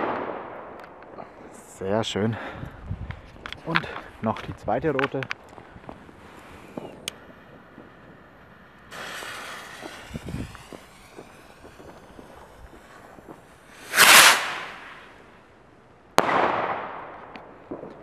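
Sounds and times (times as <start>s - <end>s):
rocket launch whoosh: 8.9s - 12.8s, 13.7s - 15.2s.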